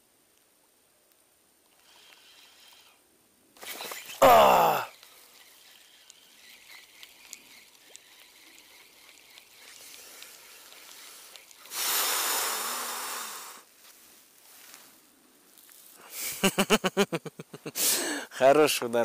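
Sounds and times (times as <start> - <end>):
fishing reel ticking and whirring: 1.7 - 3.0, 3.6 - 13.7
loud hissing rush: 11.7 - 13.7.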